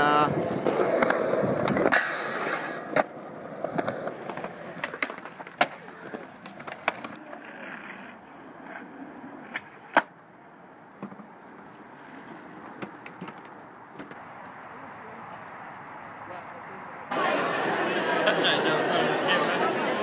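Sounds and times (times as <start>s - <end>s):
skateboard wheels rolling on pavement: 0.0s - 20.0s
skateboard clacks: 0.3s - 10.2s, 10.9s - 14.2s.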